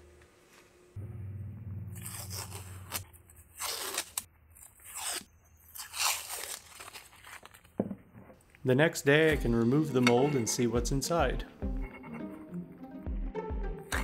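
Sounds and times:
masking tape tearing: 1.9s - 7.8s.

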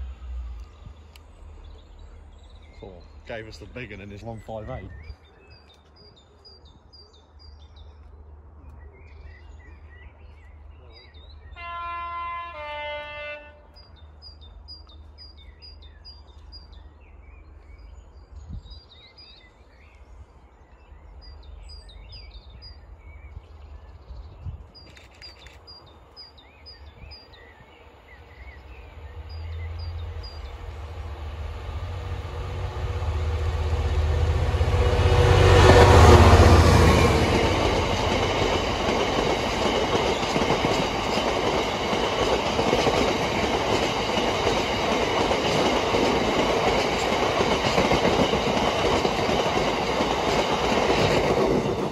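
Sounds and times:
diesel locomotive running: 0.0s - 5.1s, 26.8s - 51.9s
birds chirping: 0.0s - 51.9s
two-tone train horn: 11.6s - 13.8s.

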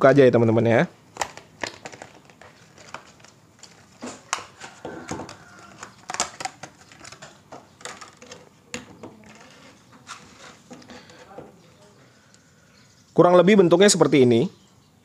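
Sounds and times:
plastic packaging crackling: 1.1s - 11.3s.

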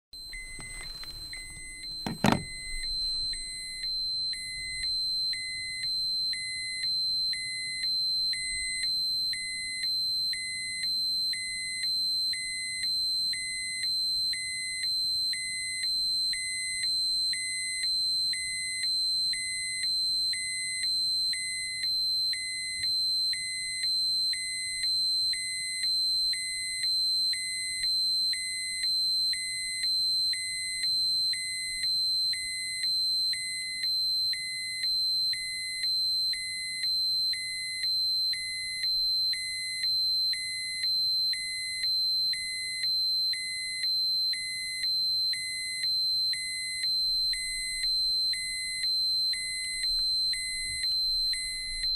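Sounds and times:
dosimeter alarm tone: 0.2s - 51.9s.

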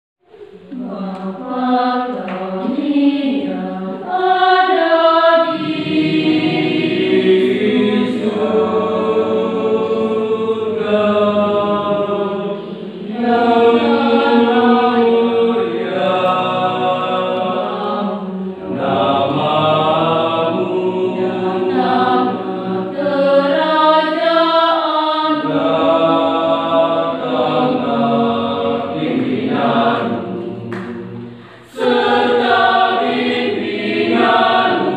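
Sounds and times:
choir singing unaccompanied: 0.3s - 34.9s.

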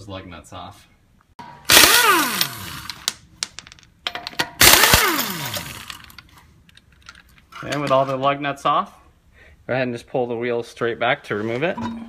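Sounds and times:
impact wrench spinning: 1.4s - 6.3s.

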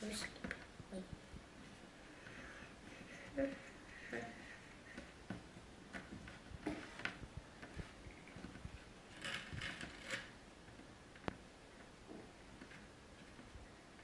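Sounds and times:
rustling: 0.0s - 14.0s.

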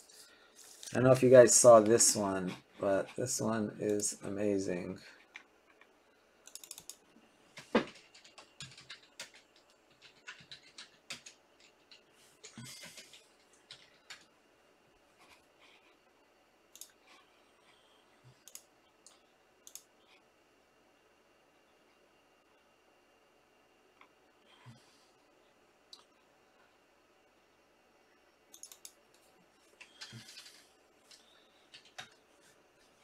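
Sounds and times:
typing on computer keyboard: 6.5s - 7.0s, 7.6s - 14.3s, 28.5s - 29.0s, 29.8s - 32.2s.

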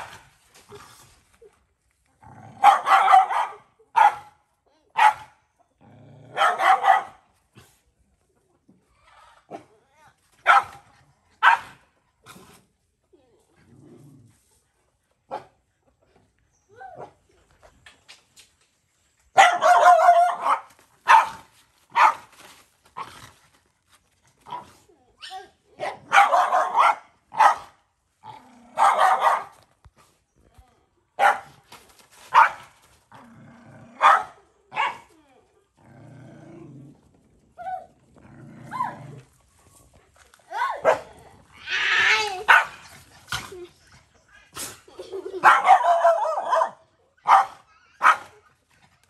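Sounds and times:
dog barking: 2.6s - 4.4s, 5.0s - 5.4s, 6.3s - 7.2s, 10.4s - 10.8s, 11.4s - 11.8s, 19.4s - 22.3s, 25.8s - 27.8s, 28.8s - 29.6s, 31.2s - 31.5s, 32.3s - 32.7s, 34.0s - 35.1s, 40.8s - 41.1s, 42.5s - 42.8s, 45.4s - 48.4s
dog growling low: 5.8s - 6.4s, 13.4s - 14.6s, 33.1s - 34.0s, 35.7s - 40.0s.

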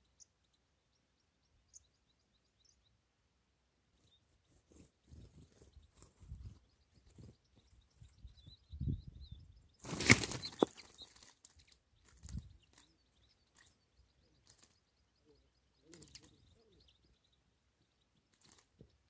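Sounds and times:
finches twittering: 5.0s - 19.0s.

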